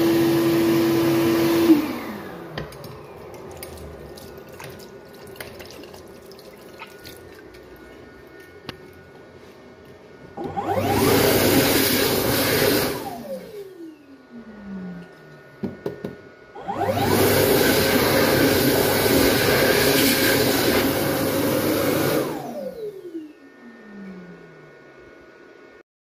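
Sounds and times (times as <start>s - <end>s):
hand dryer whining and blowing: 0.0s - 5.1s, 6.8s - 25.8s.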